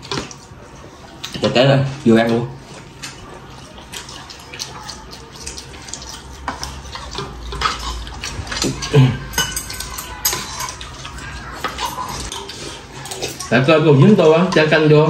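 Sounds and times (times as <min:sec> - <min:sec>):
cutlery clinking on ceramic bowls: 0:04.8 - 0:15.0.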